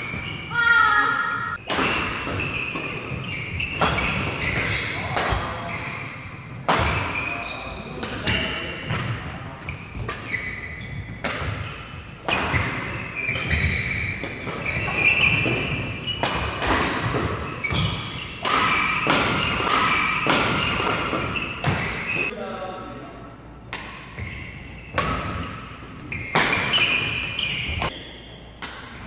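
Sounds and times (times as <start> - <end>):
shoes squeaking on court: 0.0 - 0.6, 2.1 - 22.3, 24.0 - 28.5
rackets striking shuttlecock: 11.1 - 22.3.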